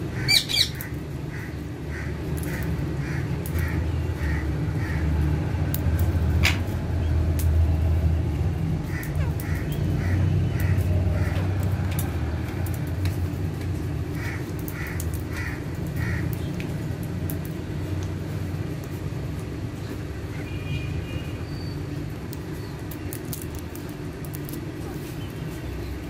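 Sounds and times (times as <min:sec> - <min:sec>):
parakeets calling: 0:00.0 - 0:05.2, 0:08.8 - 0:12.1, 0:14.1 - 0:16.6.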